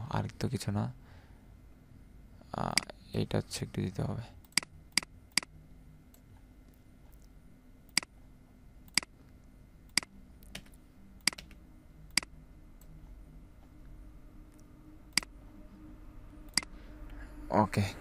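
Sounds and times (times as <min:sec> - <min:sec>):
faint room hum: 0:00.0 - 0:18.0
computer mouse clicking: 0:04.4 - 0:05.5, 0:07.9 - 0:08.1, 0:08.9 - 0:09.1, 0:09.9 - 0:12.9, 0:15.1 - 0:15.3, 0:16.5 - 0:16.7.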